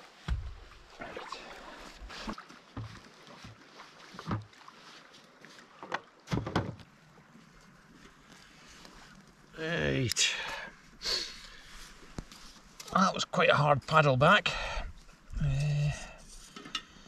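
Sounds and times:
camping gear being handled: 1.6 - 13.0.

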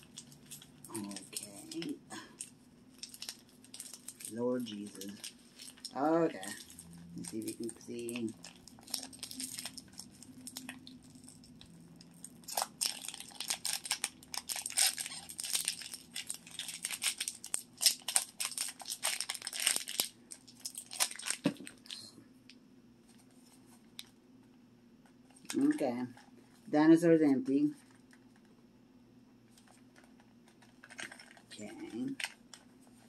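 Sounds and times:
foil pouch crackling: 0.0 - 22.0.

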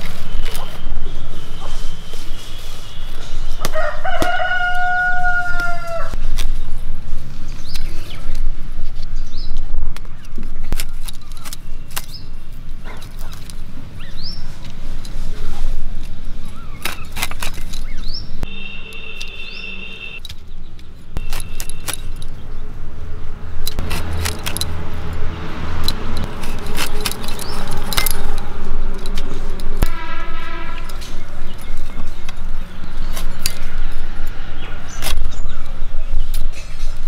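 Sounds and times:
birds chirping: 7.4 - 14.8, 16.3 - 22.8, 26.5 - 28.5, 30.5 - 36.9.

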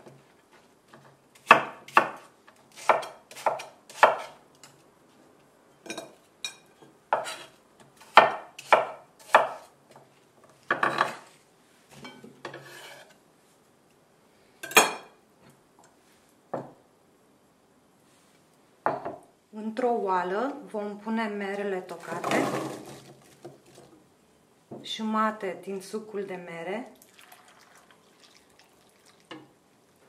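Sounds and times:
knife chopping on wooden board: 1.4 - 4.4, 7.1 - 9.7
soft brushing sound: 11.1 - 13.7, 16.0 - 16.4, 18.0 - 18.6.

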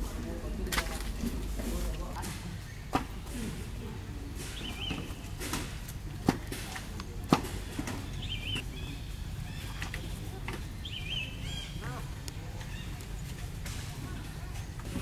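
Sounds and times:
bird high-pitched call: 8.2 - 10.0.

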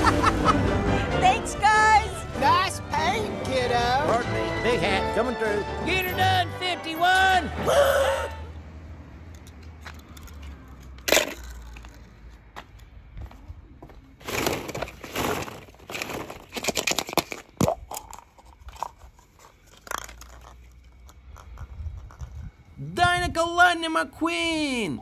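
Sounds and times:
plastic toy balls clattering: 11.0 - 12.1, 14.2 - 22.4
plastic toy eggs clicking: 17.0 - 22.4.

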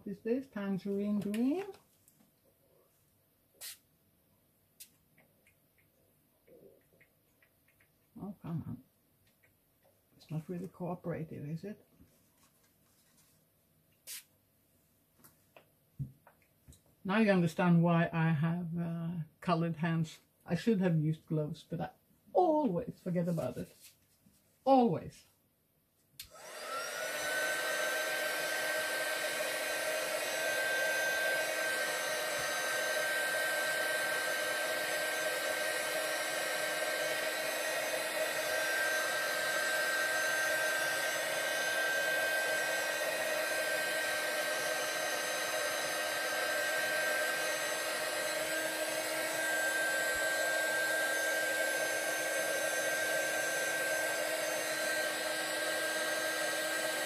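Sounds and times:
heat tool fan whine: 26.2 - 57.0.

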